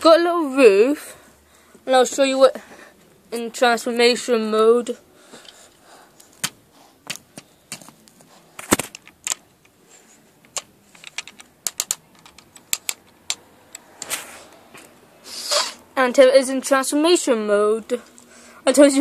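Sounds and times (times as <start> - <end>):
plastic bricks clicking together: 8.6 - 9.8, 10.4 - 14.1.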